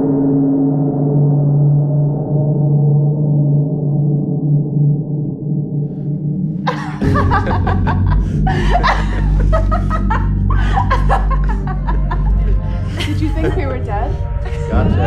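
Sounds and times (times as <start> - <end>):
low droning score: 0.0 - 15.0
woman laughing and giggling: 6.7 - 14.2.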